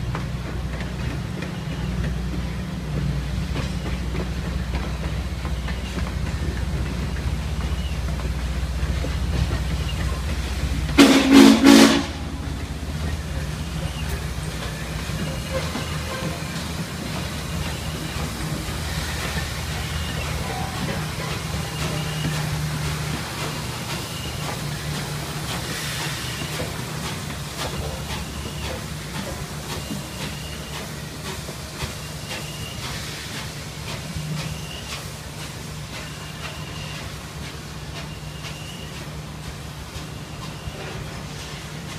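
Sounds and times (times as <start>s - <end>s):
rumble of passenger cars rolling: 0.0s - 41.9s
steam locomotive working slowly: 0.0s - 41.9s
steam whistle blasts: 11.0s - 12.4s.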